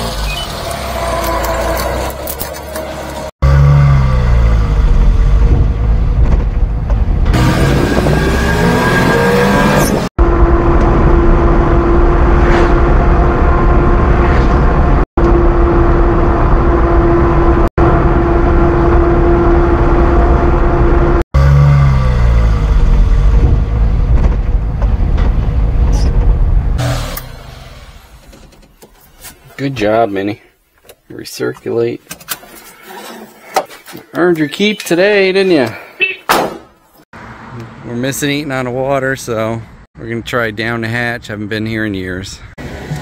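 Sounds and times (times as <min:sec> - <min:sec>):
small truck engine: 0:00.0 - 0:14.2, 0:15.2 - 0:28.9, 0:42.6 - 0:43.0
road noise in cab: 0:00.0 - 0:29.7, 0:42.5 - 0:43.0.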